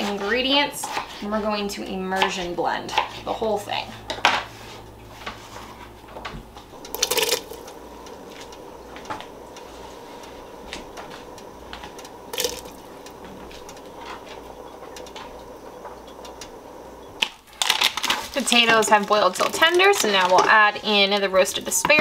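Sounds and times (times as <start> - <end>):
pot of broth bubbling: 6.8 - 8.2, 12.2 - 14.5.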